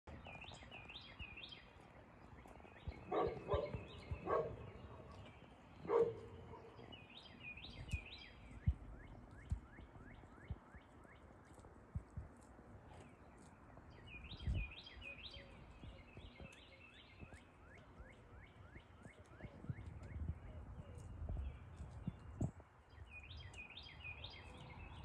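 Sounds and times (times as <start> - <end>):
birds chirping and whistling: 0.1 - 11.6, 12.9 - 25.0.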